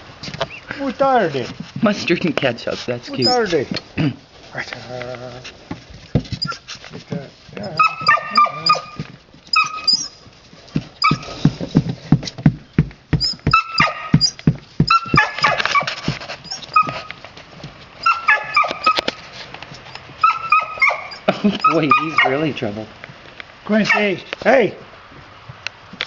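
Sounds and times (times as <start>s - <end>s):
low thumps and scuffles: 1.2s - 4.0s, 5.3s - 18.0s
puppies whining: 3.1s - 3.6s, 6.2s - 6.7s, 7.6s - 10.3s, 11.0s - 11.5s, 13.2s - 17.2s, 18.0s - 19.2s, 19.8s - 22.4s.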